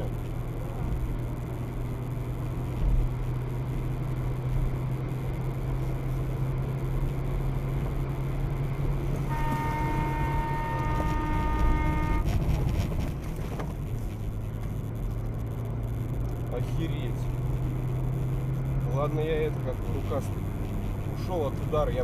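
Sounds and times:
car engine and road noise: 0.0s - 22.0s
car horn held: 9.2s - 12.9s.

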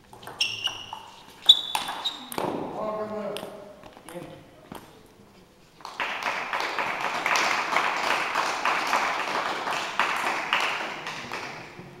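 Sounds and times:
crowd applauding: 5.9s - 11.8s.

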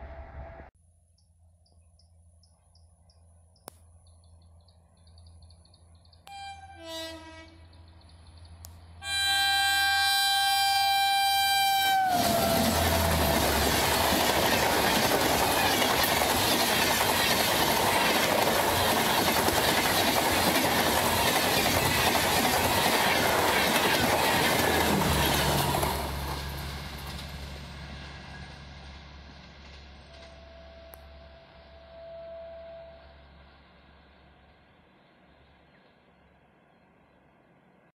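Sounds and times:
train horn: 6.3s - 8.0s, 9.0s - 13.8s, 30.1s - 33.4s
train coaches clattering past: 11.8s - 31.3s.

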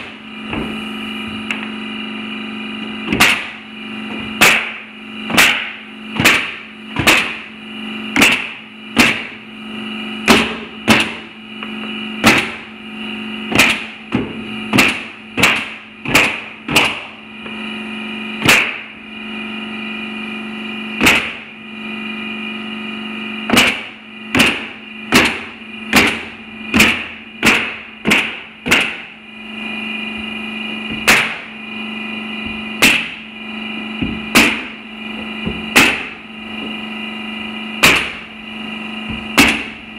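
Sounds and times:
steady hum: 0.0s - 39.9s
nail gun firing into wood: 3.1s - 3.6s, 4.4s - 7.5s, 8.2s - 9.4s, 10.3s - 11.3s, 12.2s - 12.7s, 13.5s - 17.1s, 18.4s - 18.9s, 21.0s - 21.5s, 23.5s - 29.1s, 31.0s - 31.5s, 32.8s - 33.2s, 34.0s - 34.7s, 35.8s - 36.2s, 37.8s - 38.2s, 39.4s - 39.8s.

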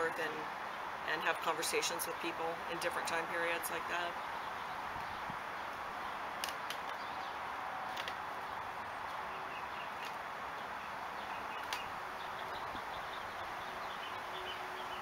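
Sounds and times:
sharp clicks: 6.4s - 7.0s, 7.9s - 8.2s, 11.6s - 11.9s.

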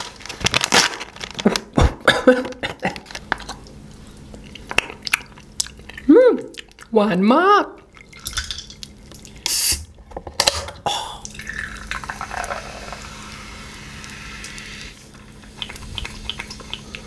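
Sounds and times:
soda poured into a glass fizzing: 11.3s - 15.0s
small clicks and drips: 15.2s - 17.0s.

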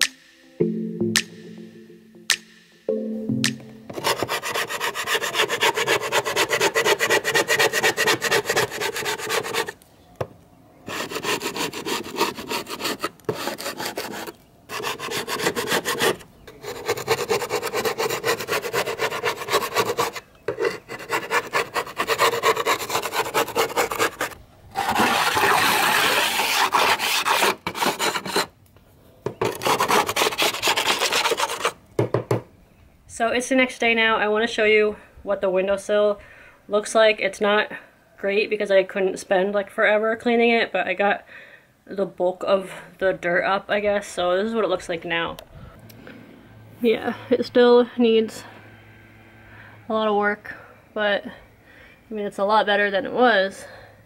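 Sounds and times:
metal scraper rasping: 4.0s - 9.8s, 10.9s - 28.5s, 29.4s - 31.8s.

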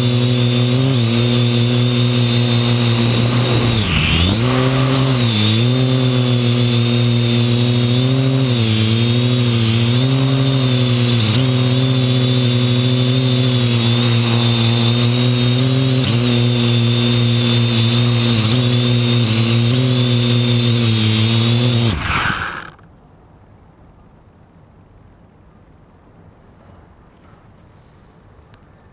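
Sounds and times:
drone motors buzzing and whining: 0.0s - 22.9s.

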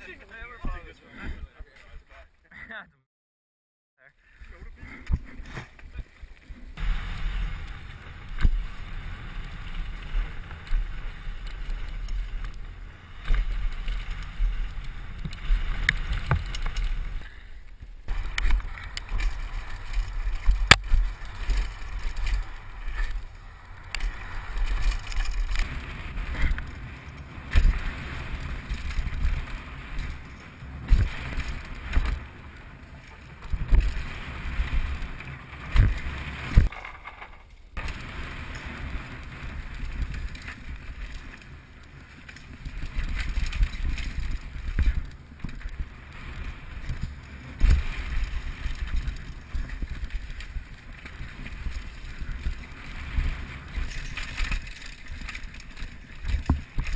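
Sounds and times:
bike tyre noise: 4.3s - 56.9s
bike rattling over rough ground: 4.4s - 56.9s.

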